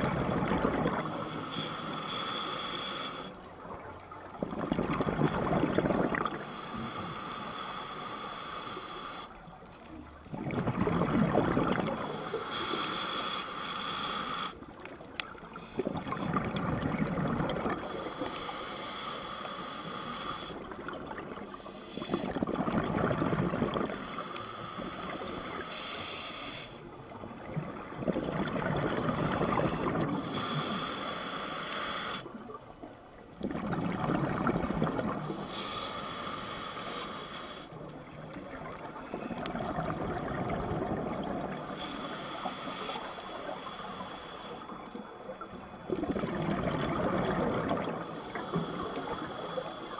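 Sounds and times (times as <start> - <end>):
bubbling exhaled air underwater: 0.0 - 1.6, 4.3 - 6.4, 10.3 - 12.3, 15.4 - 18.2, 20.6 - 24.1, 27.2 - 30.8, 33.4 - 35.5, 38.1 - 41.8, 45.8 - 49.6
diver breathing through regulator: 0.2 - 3.4, 5.4 - 9.4, 10.8 - 14.6, 15.5 - 20.9, 21.5 - 26.9, 28.3 - 32.4, 34.4 - 37.8, 39.6 - 45.1, 46.2 - 49.9.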